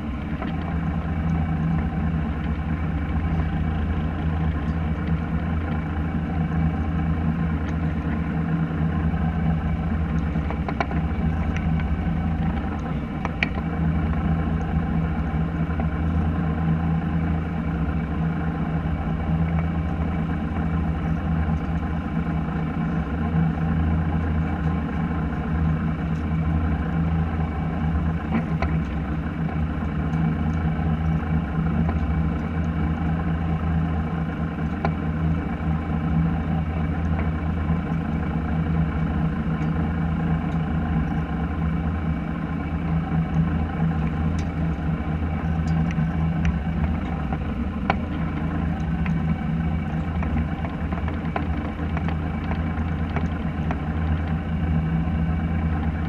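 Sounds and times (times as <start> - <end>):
boat engine humming: 0.0 - 56.0
faint clicks and knocks on deck: 10.2 - 11.9, 49.9 - 54.4.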